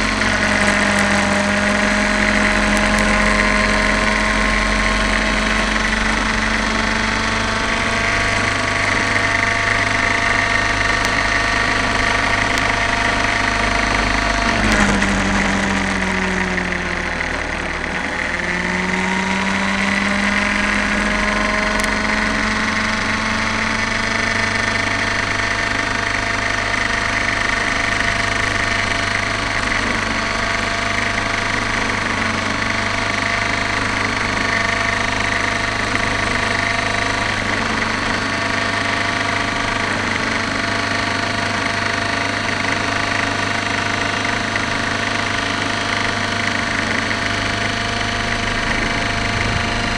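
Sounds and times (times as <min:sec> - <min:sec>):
model helicopter engine and rotor: 0:00.0 - 0:49.9.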